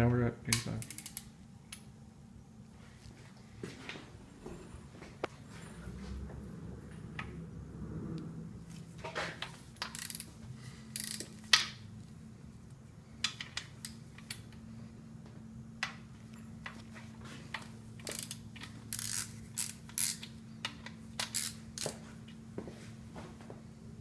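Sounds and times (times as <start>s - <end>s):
ratchet wrench clicking: 0.7s - 1.8s, 9.8s - 10.3s, 10.9s - 11.7s, 18.0s - 22.0s.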